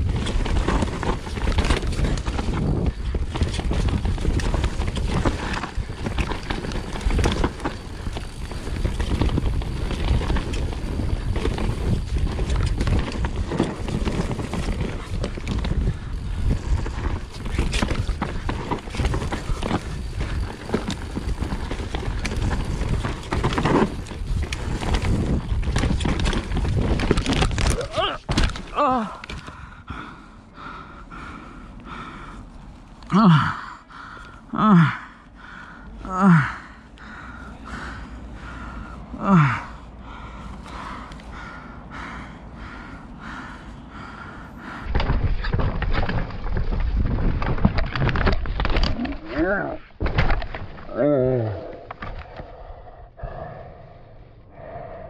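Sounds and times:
bike knocks and rattles: 0.0s - 31.3s, 36.3s - 51.0s
bike tyres rumbling over dirt: 0.0s - 52.6s
heavy breathing: 28.4s - 45.5s, 51.0s - 55.0s.

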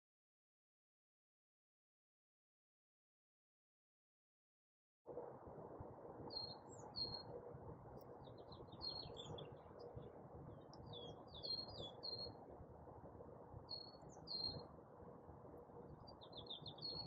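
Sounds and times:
low background rumble: 5.1s - 17.0s
songbirds chirping and trilling: 6.2s - 17.0s.

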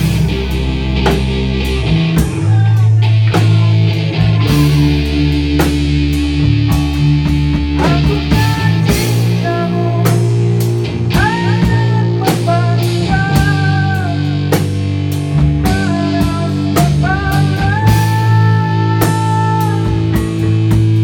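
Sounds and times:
drum kit: 0.0s - 21.0s
electric bass: 0.0s - 21.0s
lead guitar bending notes: 0.0s - 21.0s.

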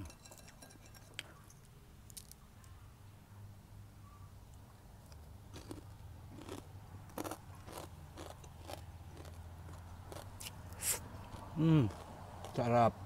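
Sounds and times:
crunchy chewing: 5.0s - 12.7s.

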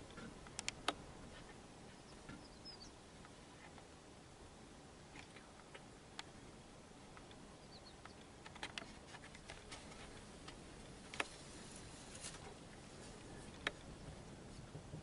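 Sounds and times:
background hiss: 0.0s - 15.0s
small clicks and ticks: 0.1s - 1.0s, 7.1s - 11.4s, 13.5s - 13.9s.

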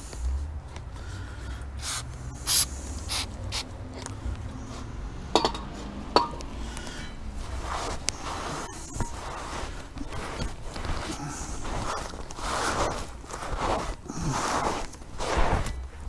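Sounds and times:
aerosol spray can hissing: 1.8s - 3.7s.

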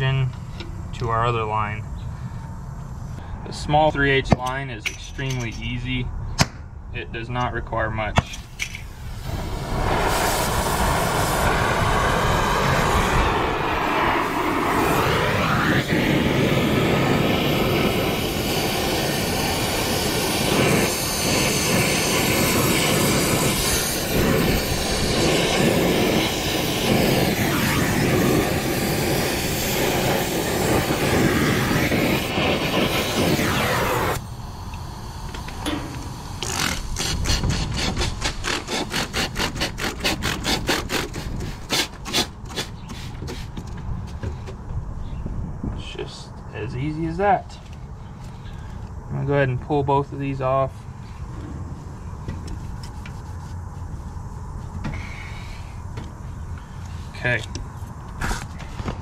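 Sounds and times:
torch flame hissing: 8.4s - 43.6s.

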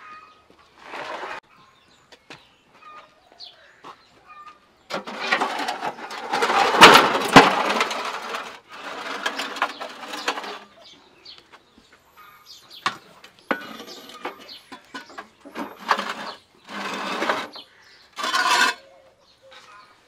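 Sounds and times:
faint birds chirping: 0.0s - 5.0s, 8.7s - 20.0s
metal scraper scraping brick floor: 0.8s - 1.5s, 4.9s - 11.0s, 12.8s - 19.0s.

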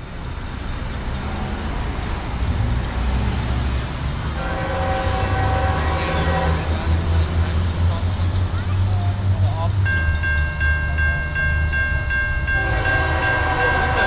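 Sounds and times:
freight train rumble: 0.0s - 14.0s
locomotive air horn chord: 4.3s - 7.2s, 12.4s - 14.0s.

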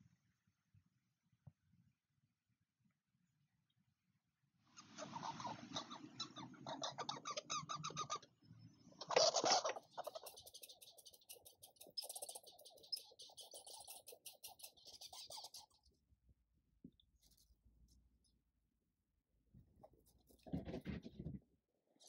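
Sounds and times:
squirrel chatter: 4.8s - 16.0s.

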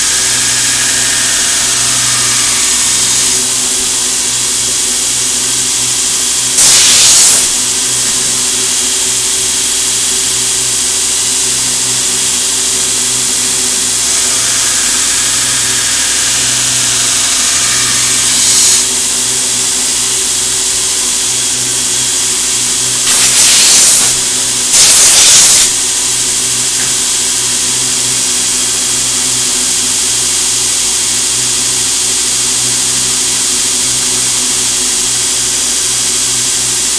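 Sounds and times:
belt grinder humming: 0.0s - 8.7s, 11.4s - 27.5s
loud hissing bursts: 0.0s - 27.9s.

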